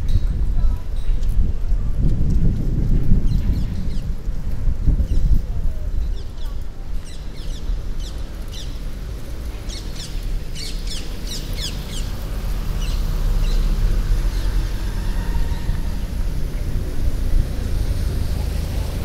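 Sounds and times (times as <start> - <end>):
low rumble of city background: 0.0 - 19.0
small birds chirping: 6.0 - 14.6.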